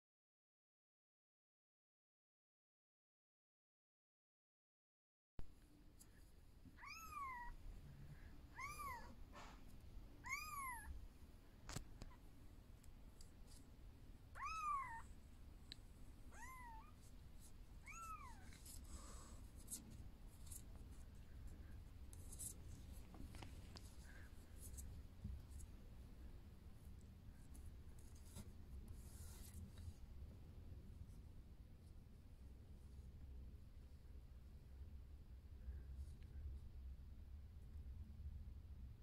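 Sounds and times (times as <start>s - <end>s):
kitten mewing: 6.8s - 7.6s, 8.6s - 9.2s, 14.4s - 15.0s, 16.3s - 17.0s, 17.8s - 18.5s
faint clicks and scuffs: 11.6s - 12.2s, 22.0s - 25.9s.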